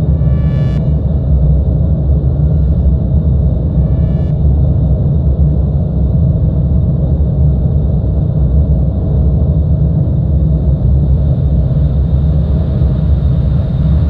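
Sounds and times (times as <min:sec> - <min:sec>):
dense low rumbling drone: 0:00.0 - 0:14.0.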